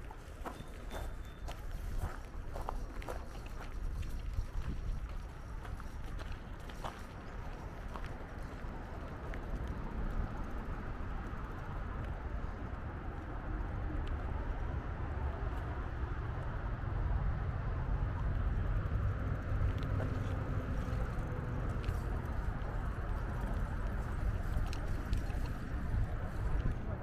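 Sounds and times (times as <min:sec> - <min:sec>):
wind buffeting microphone: 0:00.0 - 0:27.0
bicycle tyre noise: 0:18.8 - 0:26.8.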